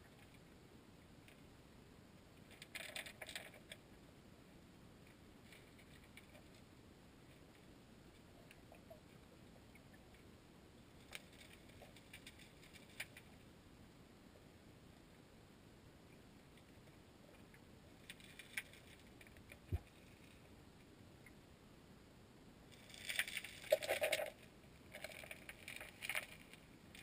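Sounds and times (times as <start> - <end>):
muffled underwater creek noise: 0.0 - 22.0, 22.8 - 27.0
light clicks and ticks: 22.7 - 27.0.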